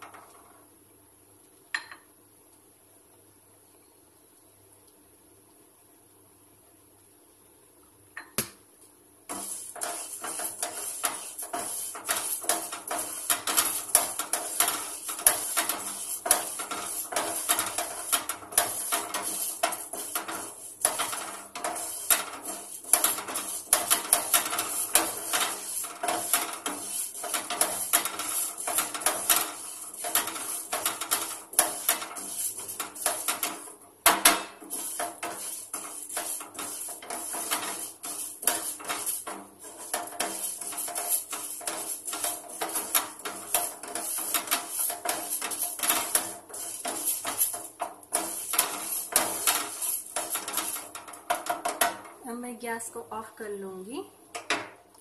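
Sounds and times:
metal spoon scraping frying pan: 9.3 - 52.2.

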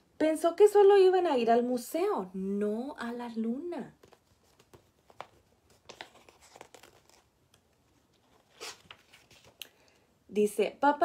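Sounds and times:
book pages turning: 4.0 - 10.0.

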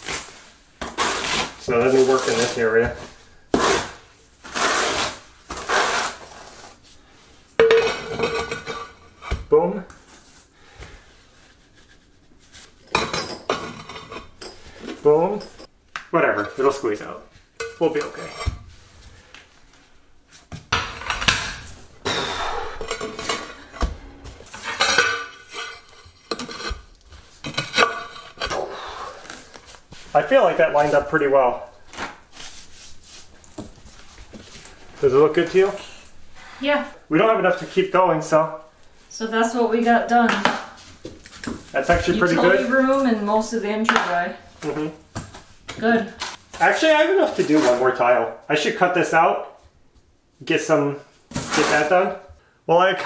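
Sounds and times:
trowel scraping mortar: 0.0 - 2.6, 3.6 - 6.8
ceramic tile scraping and clinking: 21.0 - 28.6.

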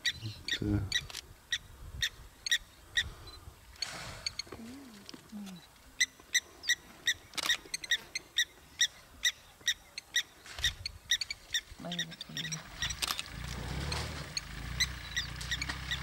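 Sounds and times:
bird calling in sharp notes: 14.2 - 16.0.

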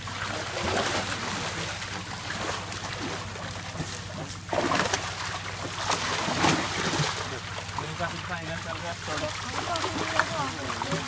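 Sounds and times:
steady low hum: 0.0 - 11.0
water splashing and sloshing: 0.0 - 11.0.

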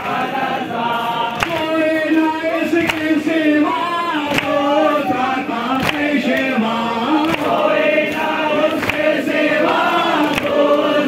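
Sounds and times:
men chanting a lament: 0.0 - 11.0
chest beating slaps: 2.8 - 3.2, 4.3 - 6.5, 7.2 - 9.1.

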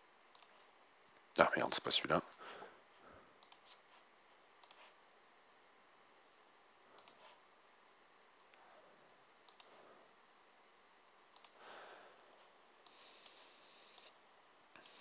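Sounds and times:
faint mouse clicks: 0.3 - 1.6, 3.4 - 3.8, 4.6 - 5.0, 6.9 - 7.4, 9.4 - 9.8, 11.3 - 11.6, 12.8 - 14.2, 14.8 - 15.0.

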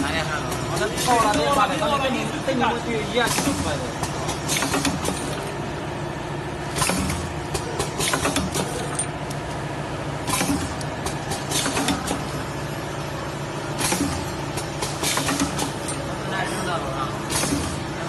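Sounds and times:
machine motor hum: 0.0 - 18.0
machine clacks: 3.2 - 5.5, 6.7 - 9.6, 10.2 - 12.4, 13.7 - 16.2, 17.2 - 18.0.

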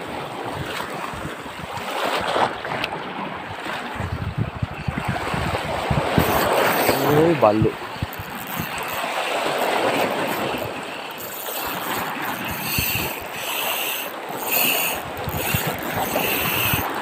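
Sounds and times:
waves slapping a boat: 0.0 - 17.0
wind buffeting microphone: 0.1 - 17.0
fishing reel whirring: 4.8 - 17.0.

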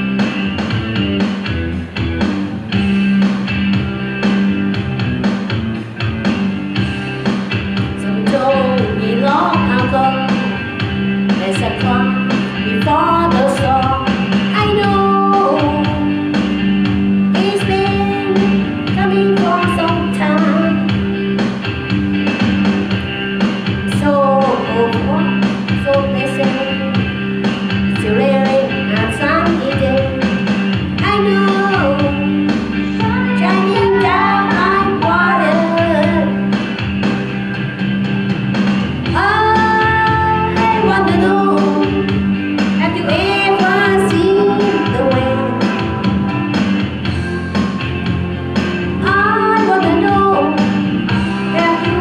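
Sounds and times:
rock backing track: 0.0 - 52.0
woman singing into a microphone: 8.0 - 10.6, 11.4 - 16.2, 17.3 - 21.0, 23.9 - 27.1, 27.9 - 30.4, 31.0 - 36.4, 39.1 - 42.2, 42.8 - 46.0, 48.9 - 52.0.

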